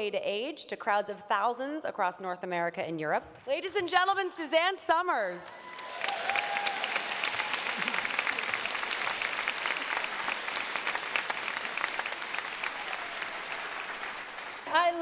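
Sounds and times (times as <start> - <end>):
large audience applauding: 5.6 - 15.0.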